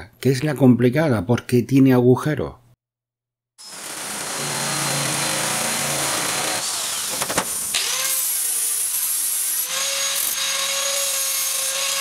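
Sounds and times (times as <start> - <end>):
angle grinder whining: 3.6 - 12.0
sheet-metal cutter grating: 3.6 - 12.0.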